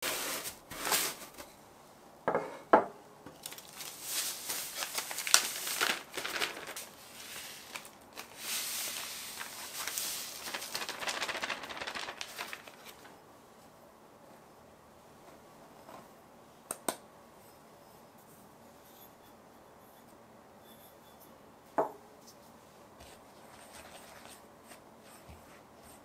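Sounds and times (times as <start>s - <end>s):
plastic bag crinkling: 3.3s - 13.2s.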